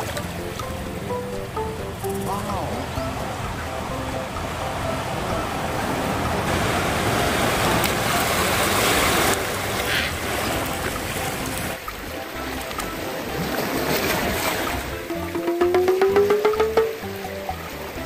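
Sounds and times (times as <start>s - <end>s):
surf washing over rocks: 4.4s - 11.8s.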